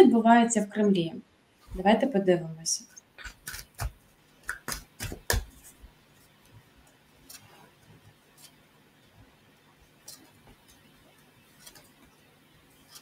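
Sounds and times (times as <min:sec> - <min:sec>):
cards being shuffled: 0:03.2 - 0:08.6, 0:10.0 - 0:12.2, 0:12.8 - 0:13.0.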